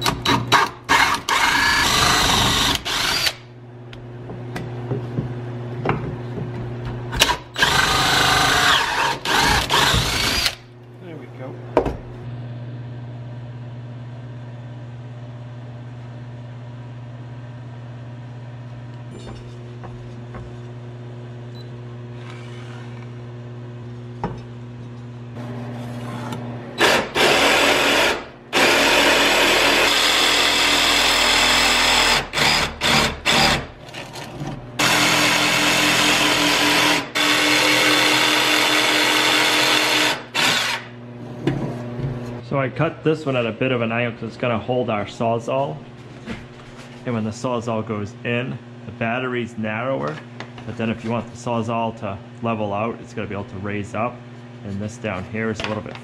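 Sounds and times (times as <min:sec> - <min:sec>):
jigsaw cutting wood: 0:00.9 - 0:03.4, 0:07.5 - 0:10.6, 0:26.8 - 0:33.7, 0:34.8 - 0:40.9
steady low hum: 0:40.6 - 0:56.0.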